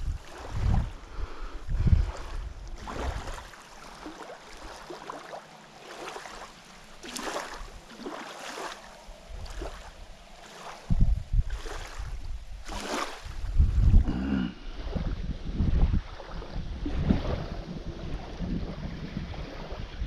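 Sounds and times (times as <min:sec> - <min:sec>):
wind buffeting microphone: 0:00.0 - 0:04.1, 0:09.0 - 0:20.0
small waves lapping on sand: 0:00.0 - 0:20.0.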